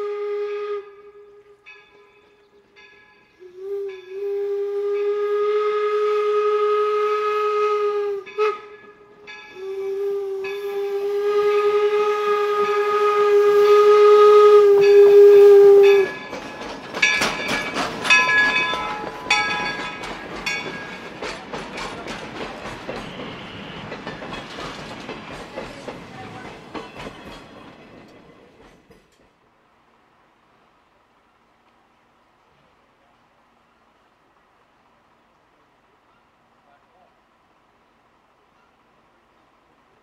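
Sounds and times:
steam whistle blowing: 0.0 - 1.6, 3.4 - 16.3, 22.9 - 24.0
train wheels clattering over rail joints: 15.8 - 29.4.

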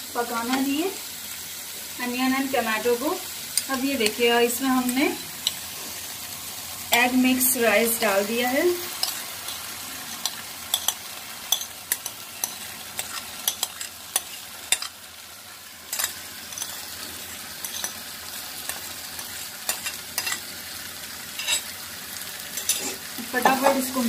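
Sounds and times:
food sizzling in a frying pan: 0.0 - 24.0
spoon scraping and clicking on plate: 10.2 - 14.9, 21.4 - 21.7.

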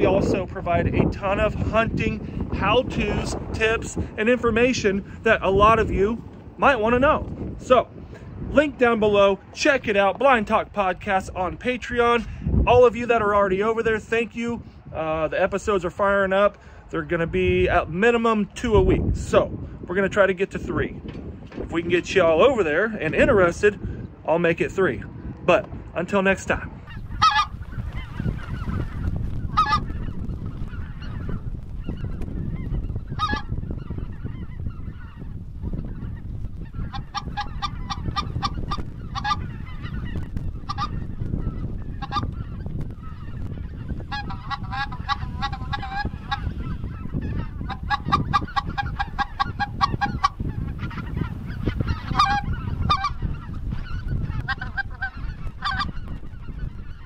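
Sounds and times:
wind noise rumble: 0.0 - 57.0
geese honking: 26.0 - 57.0.

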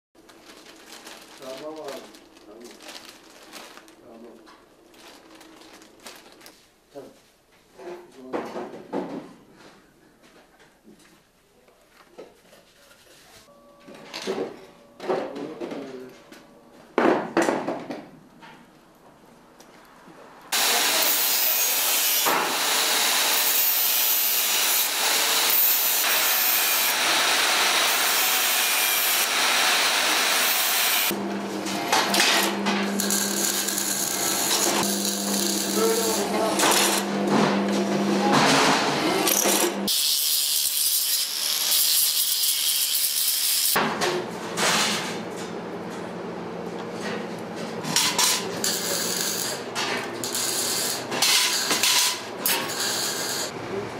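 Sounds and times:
angle grinder grinding steel: 20.6 - 31.2, 32.3 - 37.2, 39.0 - 43.8.

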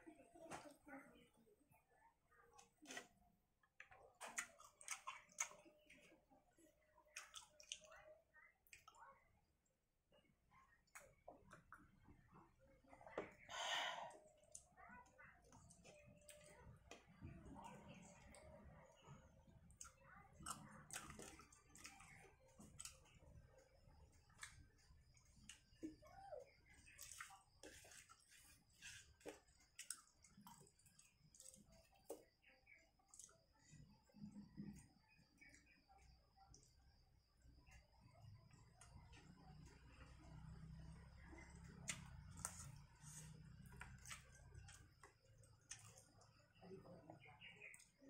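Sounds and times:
faint chewing clicks and smacks: 2.5 - 9.8, 10.5 - 13.5, 14.1 - 48.0
mouth clicks and smacks chewing: 3.8 - 6.2, 7.1 - 8.0, 27.0 - 32.3.

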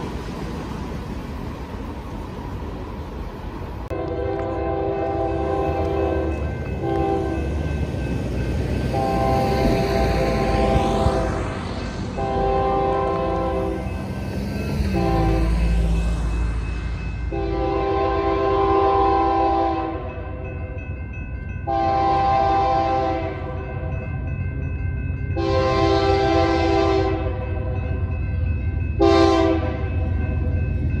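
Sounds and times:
low train rumble: 0.0 - 31.0
locomotive air horn blasts: 3.9 - 7.5, 8.9 - 11.4, 12.2 - 13.8, 14.9 - 15.6, 17.3 - 20.3, 21.7 - 23.7, 25.4 - 27.8, 29.0 - 29.9.

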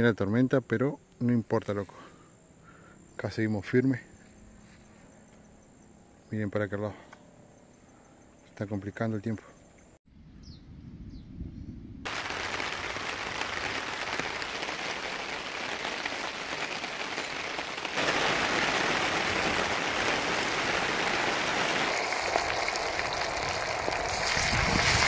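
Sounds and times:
rain falling: 12.1 - 25.0.

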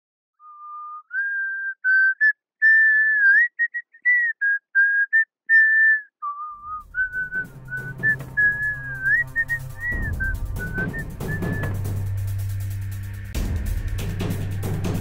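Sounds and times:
person whistling a tune: 0.4 - 11.9.

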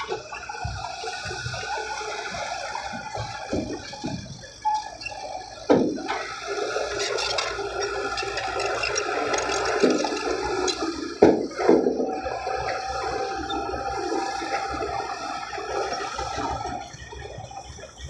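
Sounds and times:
diesel engines running: 0.0 - 18.0.

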